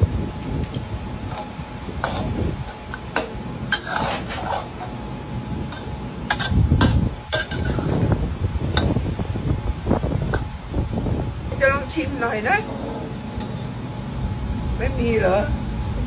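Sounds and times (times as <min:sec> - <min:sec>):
low background rumble: 0:00.0 - 0:16.0
metal spatula scraping a wok: 0:00.7 - 0:09.4, 0:12.6 - 0:13.8.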